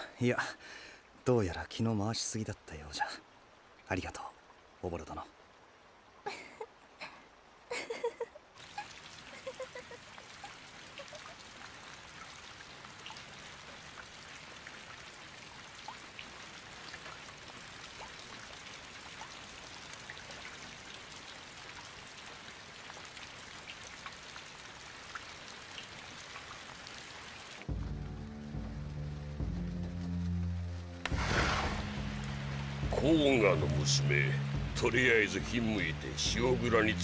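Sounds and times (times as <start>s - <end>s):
rain hiss: 0.0s - 37.0s
raindrops ticking: 8.6s - 37.0s.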